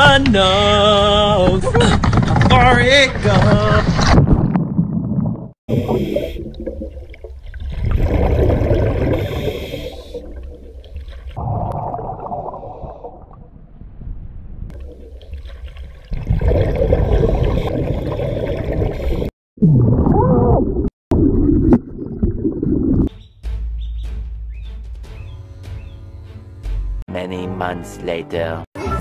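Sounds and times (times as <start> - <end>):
wet gurgling: 4.2 - 13.6, 14.7 - 23.1.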